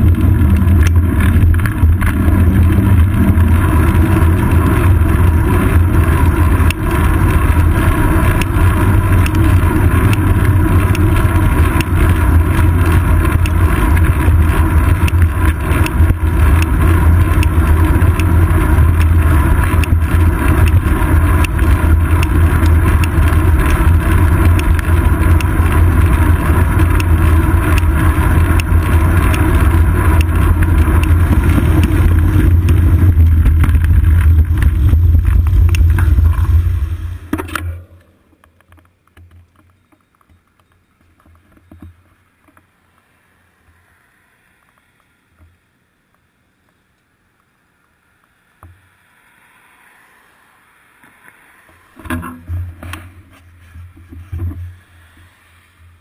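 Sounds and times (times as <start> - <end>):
deep low drone: 0.0 - 38.1
wind and road rumble: 0.0 - 56.0.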